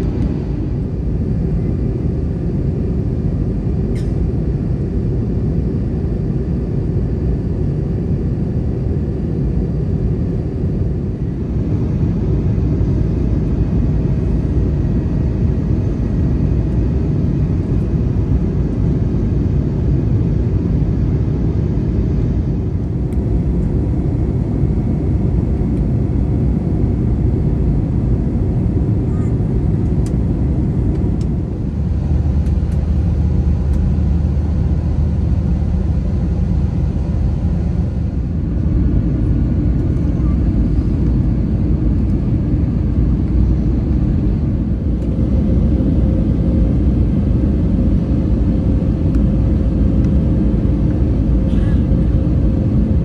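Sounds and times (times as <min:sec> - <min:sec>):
airplane cabin engine roar: 0:00.0 - 0:53.0.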